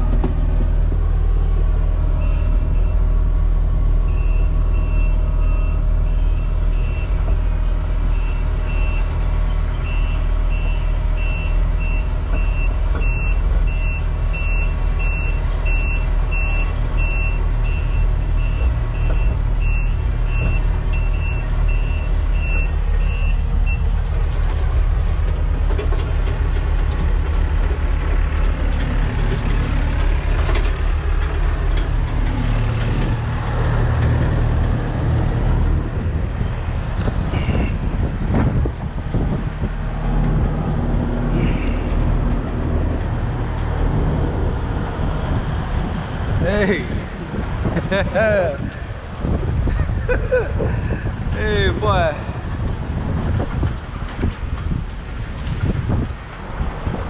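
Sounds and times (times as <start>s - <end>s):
diesel excavator engine: 0.0s - 57.0s.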